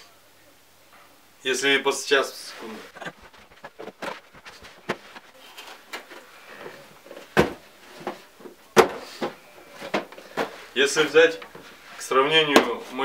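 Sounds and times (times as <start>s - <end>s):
light rustling: 2.6s - 13.0s
cardboard boxes knocking: 7.2s - 8.2s.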